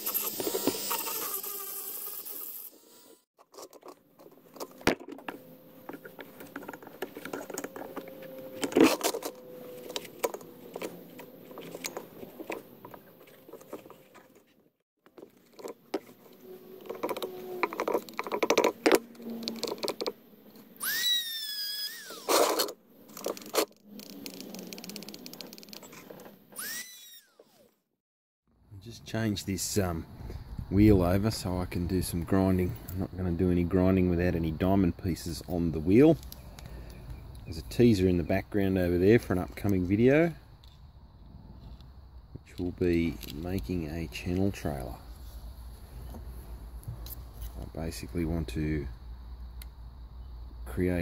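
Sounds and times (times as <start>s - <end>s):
crunching and scratching debris: 3.4s - 20.1s.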